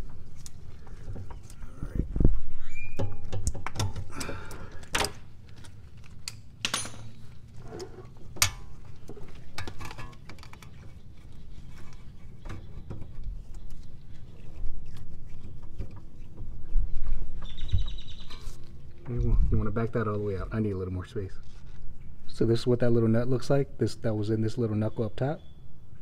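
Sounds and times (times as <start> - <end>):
metal tools clinking: 6.6 - 8.8.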